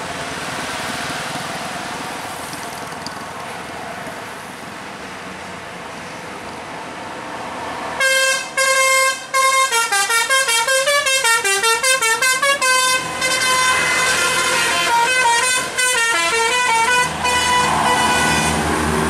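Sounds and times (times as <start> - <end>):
bus engine passing: 0.0 - 19.0
multi-tone bus horn playing a tune: 8.0 - 18.8.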